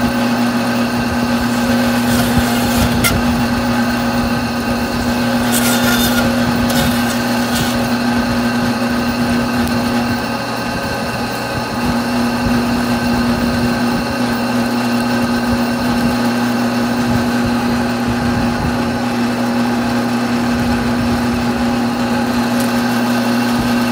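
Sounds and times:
bandsaw motor hum: 0.0s - 10.6s, 19.3s - 23.9s
blade scraping rasps: 0.8s - 8.8s, 22.3s - 23.9s.

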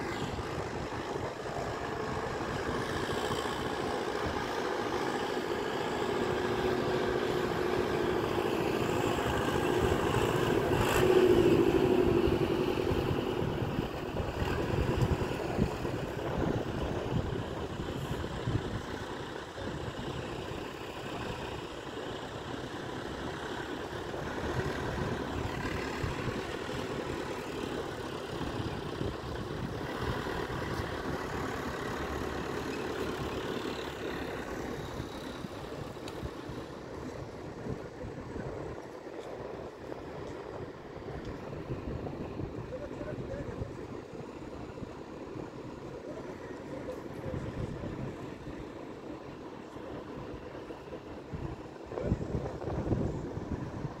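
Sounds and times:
tractor engine under load: 0.0s - 39.2s.

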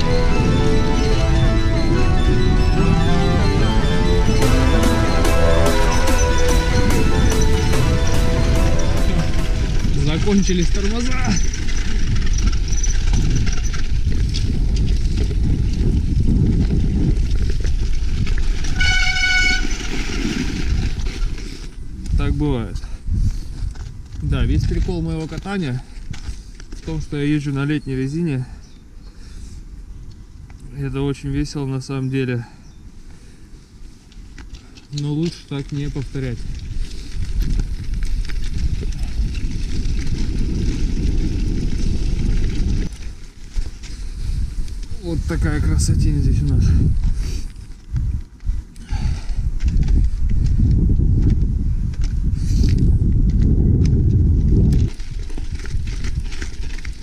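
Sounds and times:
short horn-like tone: 0.0s - 10.0s, 18.7s - 19.9s
bicycle clicking over frozen snow: 0.0s - 30.6s, 33.0s - 57.0s
wind buffeting microphone: 0.0s - 31.6s, 32.6s - 57.0s.

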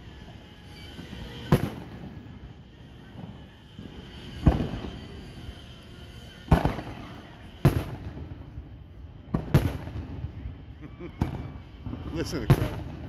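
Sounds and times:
fireworks booming: 1.3s - 2.4s, 3.2s - 5.1s, 6.5s - 8.6s, 9.3s - 10.4s, 11.1s - 13.0s.

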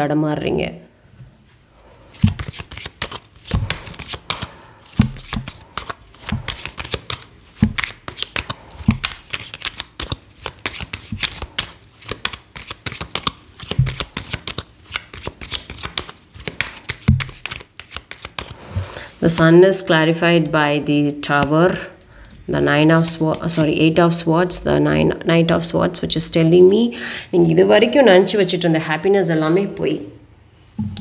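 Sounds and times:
cards being shuffled: 2.1s - 18.9s, 23.0s - 23.8s.

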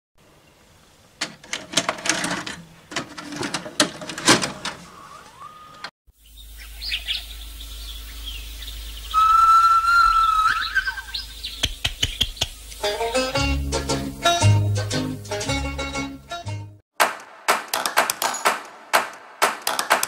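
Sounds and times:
birds chirping: 4.7s - 12.9s.

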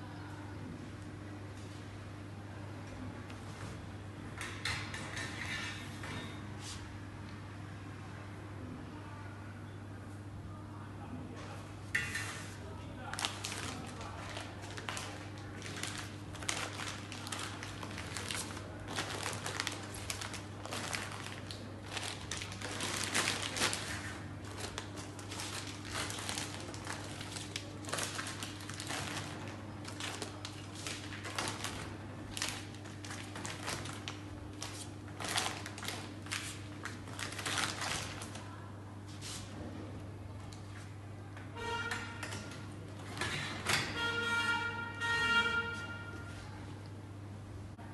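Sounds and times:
plastic bags crinkling: 13.0s - 38.6s.

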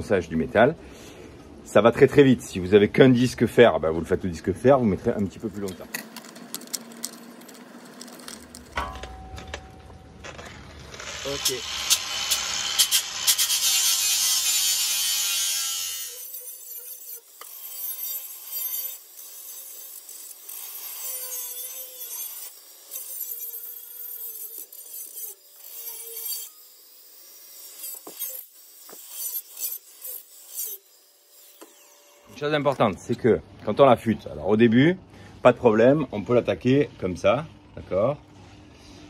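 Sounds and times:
angle grinder grinding steel: 5.0s - 32.8s.

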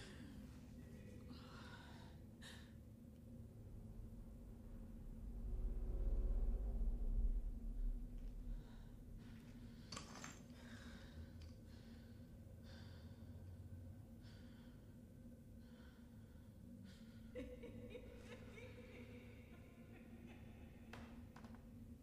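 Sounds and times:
person breathing softly: 0.0s - 3.2s, 8.0s - 17.4s
low steady hum: 0.0s - 22.0s.

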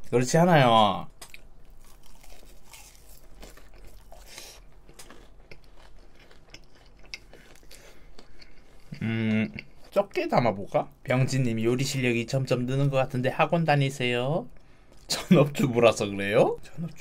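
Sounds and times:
close-up chewing: 1.2s - 9.0s.

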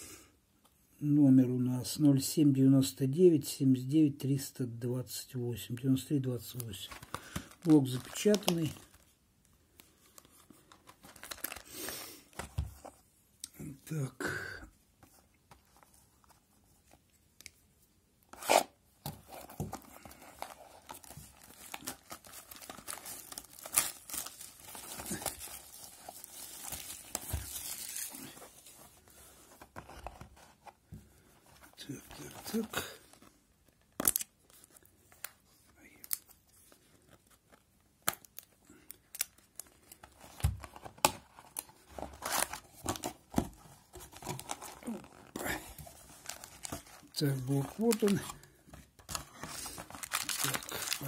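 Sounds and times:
plastic film ripping and crinkling: 7.0s - 8.9s, 11.1s - 11.9s, 20.4s - 28.4s, 44.2s - 48.4s, 49.1s - 51.0s.

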